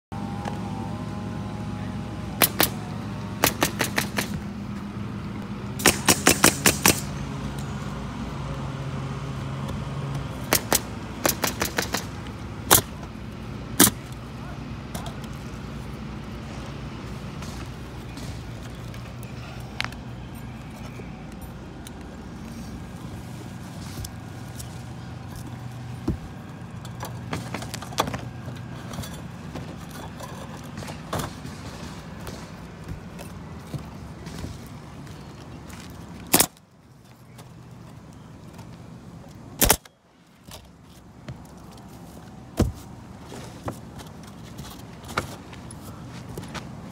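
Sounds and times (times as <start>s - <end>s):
low motor hum: 0.1s - 5.8s
nail gun firing: 2.4s - 2.8s, 3.4s - 4.4s, 5.8s - 7.1s, 10.5s - 12.9s, 39.6s - 39.9s
shingles being cut and fitted: 2.4s - 4.9s, 5.8s - 7.8s, 9.6s - 46.9s.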